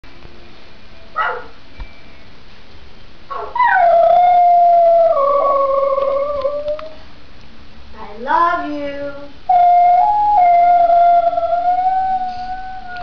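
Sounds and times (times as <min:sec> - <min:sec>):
dog howling: 0:03.3 - 0:07.0, 0:09.5 - 0:13.0.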